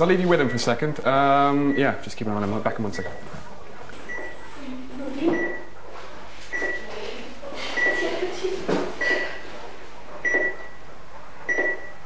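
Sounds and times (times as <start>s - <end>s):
heart monitor beeping: 2.9s - 4.6s, 5.2s - 5.8s, 6.5s - 7.0s, 7.7s - 8.2s, 8.9s - 9.6s, 10.2s - 12.0s.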